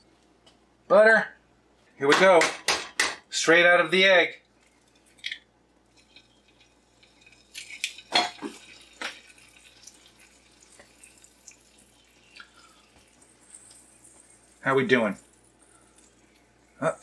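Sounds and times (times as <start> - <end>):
egg sizzling in a pan: 4.5 - 17.0
eggshell cracking: 4.7 - 14.5.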